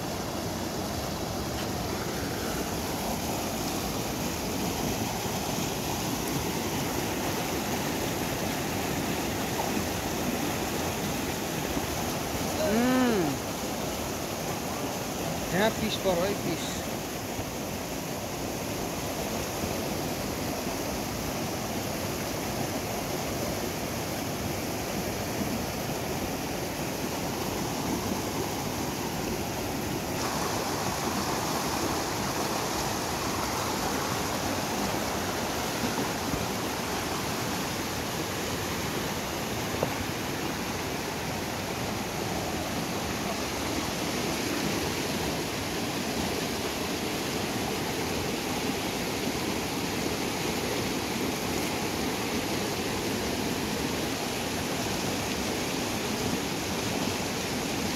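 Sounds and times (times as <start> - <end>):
river rushing over rapids: 0.0 - 57.9.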